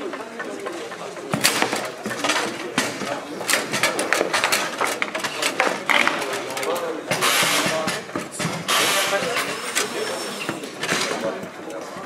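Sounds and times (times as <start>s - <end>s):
foosball clacks: 0.0s - 9.2s
murmur of voices: 0.0s - 12.0s.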